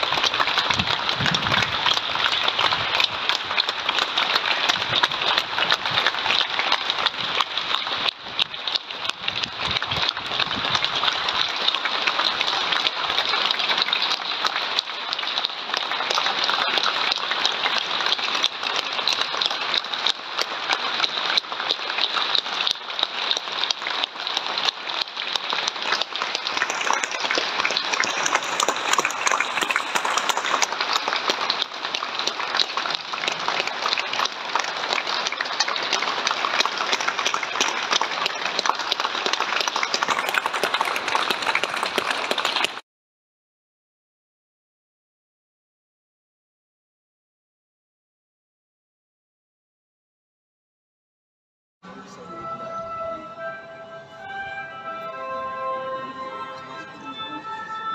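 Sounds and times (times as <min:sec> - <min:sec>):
crowd applauding: 0:00.0 - 0:42.8
person clapping close by: 0:32.3 - 0:42.8.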